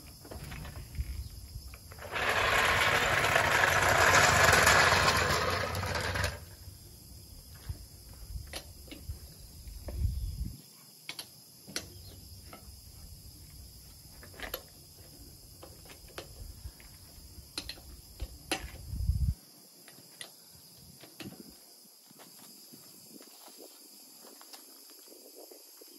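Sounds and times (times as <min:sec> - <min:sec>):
wheel brace clicking on nuts: 0:01.9 - 0:06.6.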